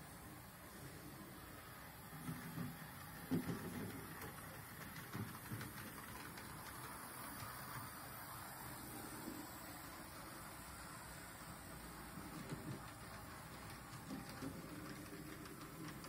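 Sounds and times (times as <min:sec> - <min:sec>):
model train motor whirring: 0:01.5 - 0:16.0
wheels clicking over rail joints: 0:02.1 - 0:08.1, 0:12.1 - 0:16.0.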